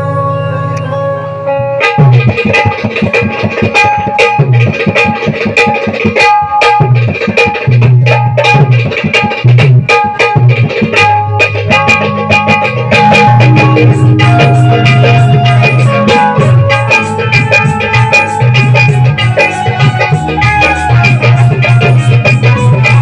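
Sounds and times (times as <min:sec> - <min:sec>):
held chord: 0:00.0 - 0:04.2, 0:11.2 - 0:23.0
plucked-string melody: 0:00.0 - 0:23.0
fast hand-drum rhythm: 0:01.8 - 0:23.0.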